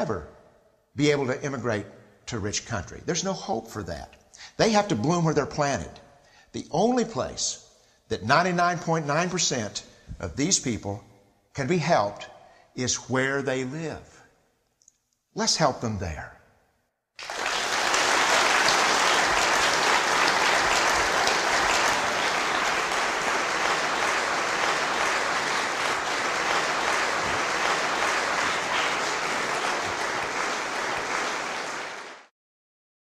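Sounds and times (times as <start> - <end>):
audience applauding: 17.2 - 32.3.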